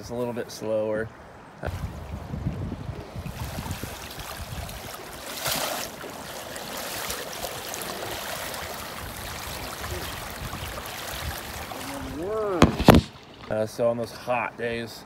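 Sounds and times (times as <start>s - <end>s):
rushing river water: 1.6s - 13.6s
fish thrashing splash: 3.3s - 13.5s.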